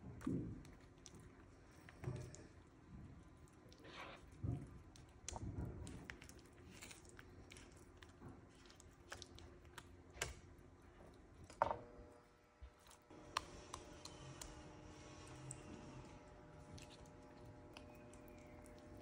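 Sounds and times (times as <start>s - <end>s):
spatula squelching through cheese sauce: 3.2s - 10.4s, 12.8s - 19.0s.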